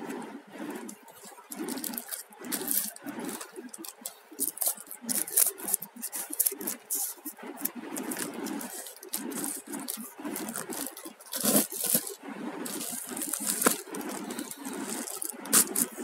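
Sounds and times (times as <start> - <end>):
plastic wrap crinkling: 0.7 - 16.0
cardboard rubbing: 0.8 - 16.0.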